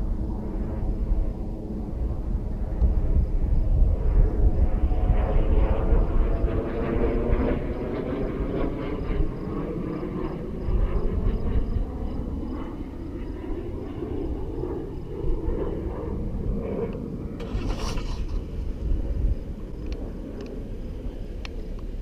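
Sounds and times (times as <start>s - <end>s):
wind rumble on microphone: 0.0s - 22.0s.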